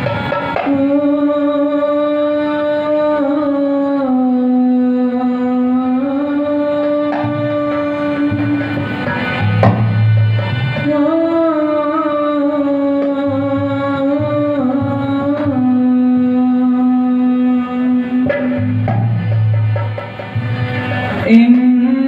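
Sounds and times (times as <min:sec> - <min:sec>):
tabla drumming: 0:00.0 - 0:22.0
person singing: 0:00.6 - 0:09.0, 0:10.8 - 0:19.0, 0:21.2 - 0:22.0.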